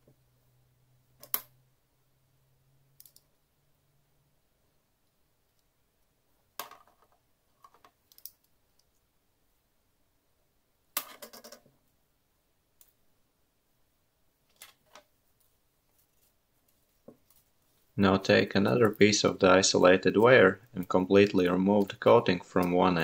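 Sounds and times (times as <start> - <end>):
magnet and wire clicking on desk: 1.2 - 1.5, 3.0 - 3.3, 7.7 - 8.9.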